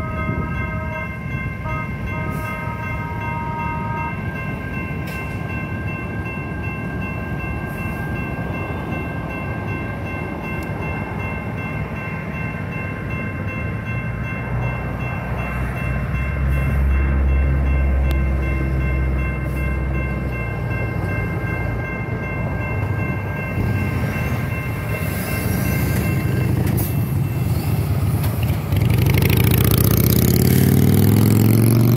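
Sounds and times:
railroad crossing bell ringing: 0.0s - 31.9s
trolley rumbling past: 0.0s - 31.9s
truck engine: 26.0s - 31.9s.

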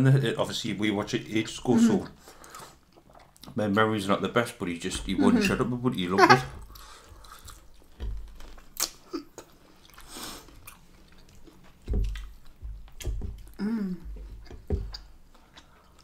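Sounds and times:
chewing and crunching food: 1.9s - 3.8s, 6.6s - 16.0s.

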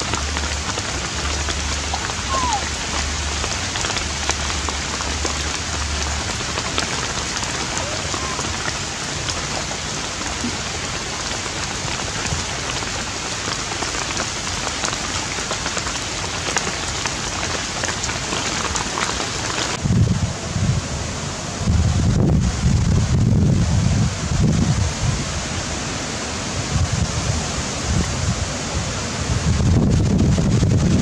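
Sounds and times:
steady rain falling: 0.0s - 31.0s
wind buffeting microphone: 0.0s - 31.0s.

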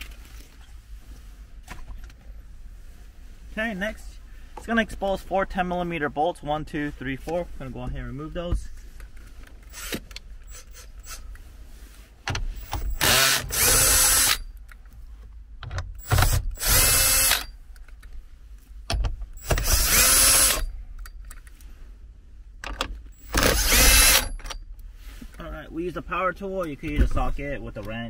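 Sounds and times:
power drill whining: 9.7s - 11.2s, 12.7s - 14.5s, 16.0s - 17.5s, 19.4s - 20.7s, 23.2s - 24.4s.

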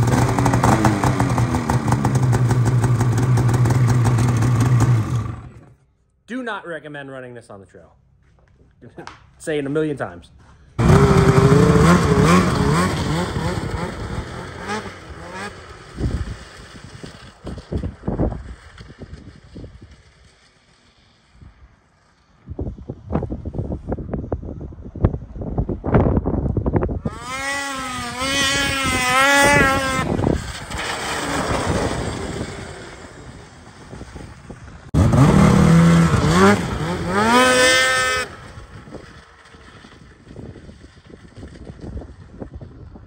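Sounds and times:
snowmobile engine revving: 0.0s - 5.8s, 10.8s - 17.8s, 27.0s - 39.9s.

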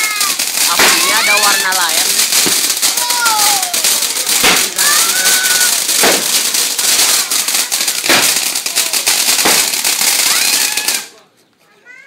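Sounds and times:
fireworks bangs: 0.0s - 11.3s
spark fountain fizzing and crackling: 0.0s - 11.3s.

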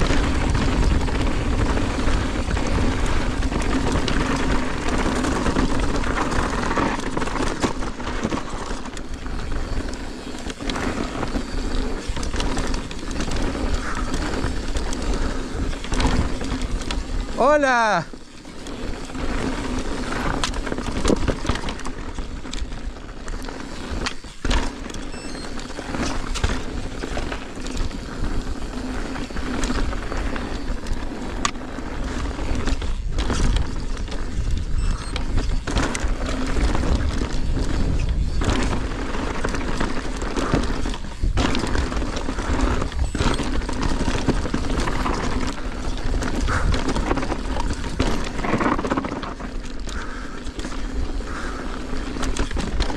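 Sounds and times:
bike knocking and rattling: 0.0s - 52.9s
wind and tyre noise: 0.0s - 52.9s.

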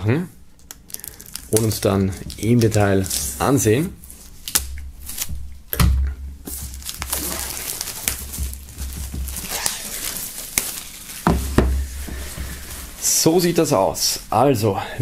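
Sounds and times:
plastic film crinkling: 0.6s - 5.6s, 6.4s - 14.2s
sharp plastic crackle: 0.6s - 5.8s, 6.5s - 13.6s.

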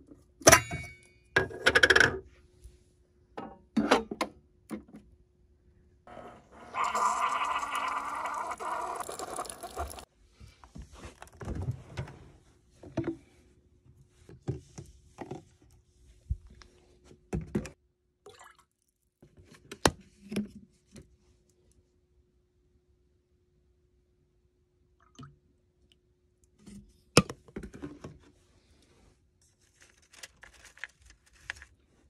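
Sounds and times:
coffee brewer sputtering hiss: 6.4s - 10.1s.

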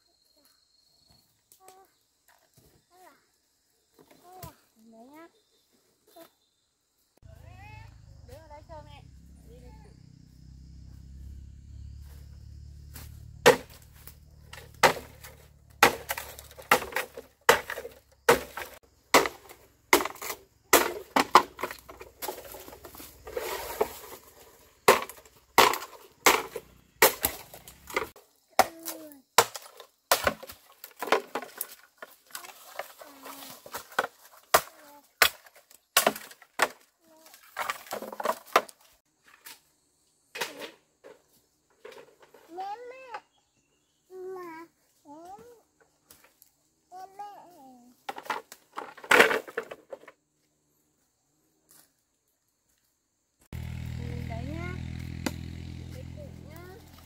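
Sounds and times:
machete chopping bamboo: 12.9s - 22.7s, 24.8s - 31.6s, 33.8s - 36.9s, 54.8s - 56.2s.

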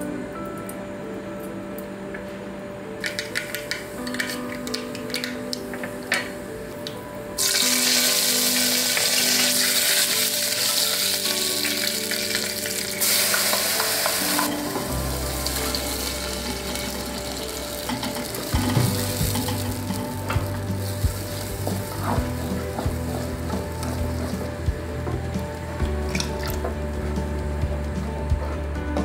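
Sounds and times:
hot oil sizzling: 7.4s - 26.6s.

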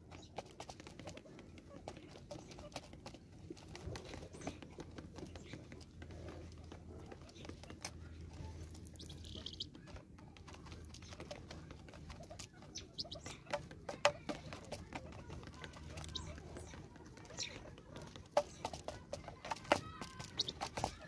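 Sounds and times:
birds pecking on plastic feeder: 0.0s - 21.0s.

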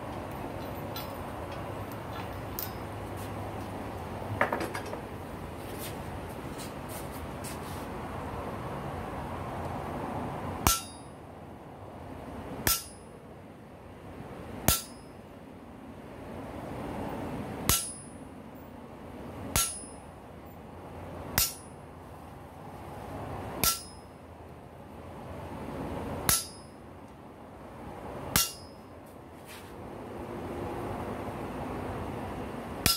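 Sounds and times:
hammer striking metal tool: 10.6s - 11.1s, 12.6s - 13.0s, 14.7s - 15.1s, 17.7s - 18.1s, 19.5s - 20.0s, 21.4s - 21.8s, 23.6s - 24.1s, 26.3s - 26.8s, 28.3s - 28.8s.

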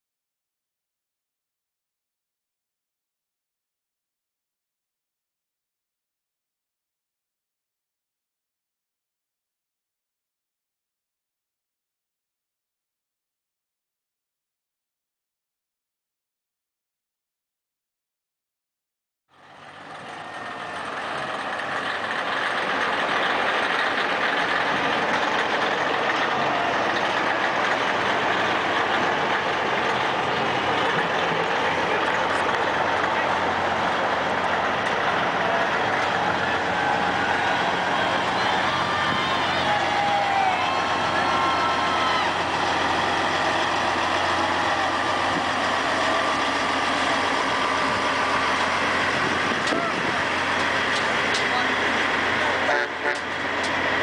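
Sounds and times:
truck engine running: 19.3s - 54.0s.

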